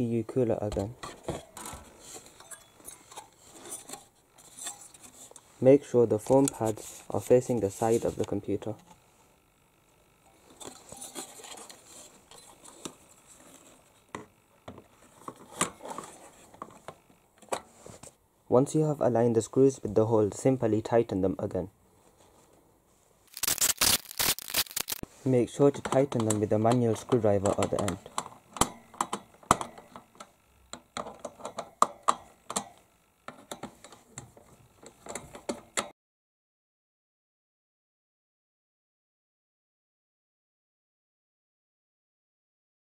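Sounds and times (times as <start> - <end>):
screwdriver clicking on metal screws: 23.3 - 25.0.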